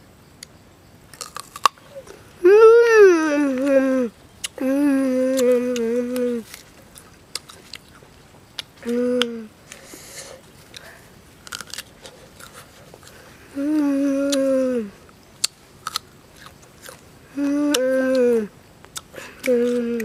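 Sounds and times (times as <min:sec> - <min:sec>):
boy chewing crunchy fruit: 0:01.1 - 0:02.5, 0:03.2 - 0:20.0
boy humming mmm: 0:01.8 - 0:06.6, 0:08.8 - 0:11.0, 0:13.4 - 0:15.0, 0:17.3 - 0:20.0.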